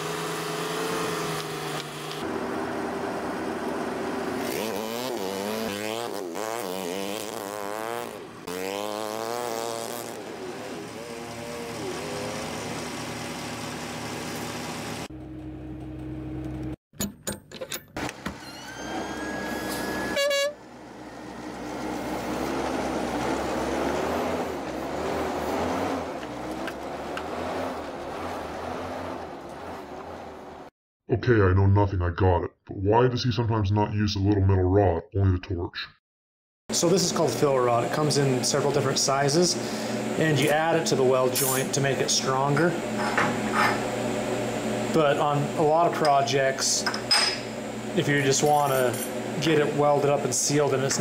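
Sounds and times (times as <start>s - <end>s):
diesel truck engine accelerating: 0.0s - 16.8s, 18.9s - 30.7s
short high-pitched tone: 18.4s - 20.6s
tyres rumbling on gravel: 21.2s - 30.7s.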